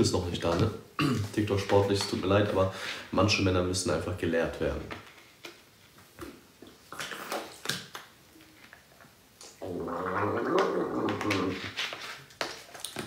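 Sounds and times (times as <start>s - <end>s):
man gargling: 9.5s - 11.7s.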